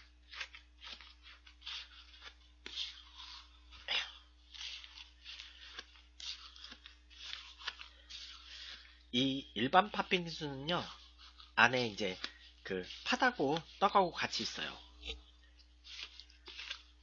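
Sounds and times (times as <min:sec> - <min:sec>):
spoon scraping shaved ice: 0:00.0 - 0:17.0.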